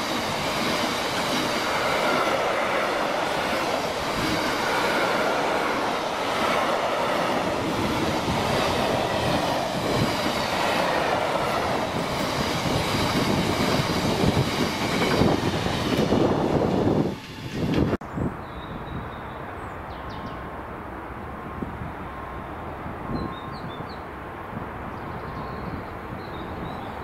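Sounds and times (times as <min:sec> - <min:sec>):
freight train wheels rumbling on track: 0:00.0 - 0:18.0.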